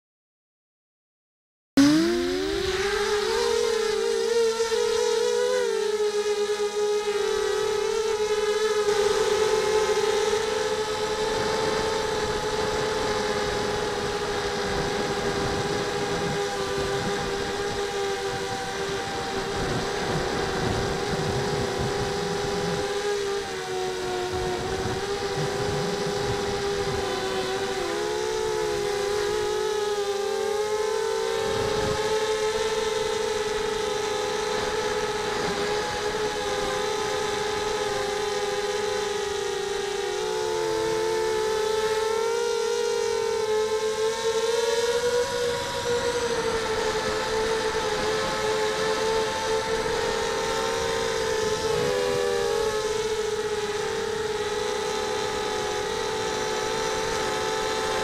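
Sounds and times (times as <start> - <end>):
drone motors buzzing: 1.8 - 58.0.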